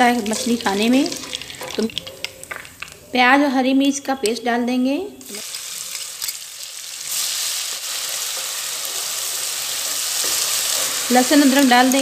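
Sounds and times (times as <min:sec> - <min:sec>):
paste sizzling in hot oil: 0:05.2 - 0:12.0.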